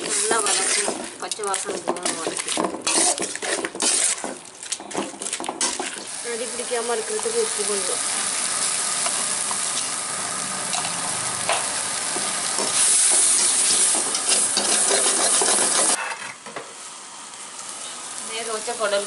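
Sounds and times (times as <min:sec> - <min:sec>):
steel ladle scraping a pan: 0:00.0 - 0:06.1, 0:12.6 - 0:16.4
masala sizzling in a pan: 0:00.0 - 0:19.0.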